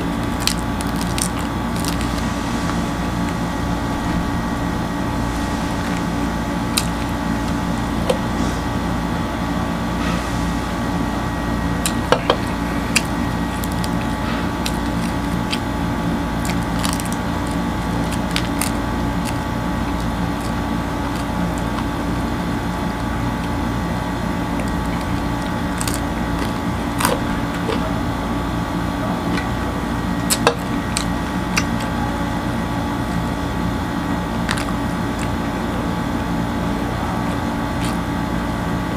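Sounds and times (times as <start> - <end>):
chewing: 0.0 - 8.6, 11.8 - 38.8
steady machine hum: 0.0 - 38.9
flatbread being torn: 0.1 - 8.2, 12.8 - 22.1.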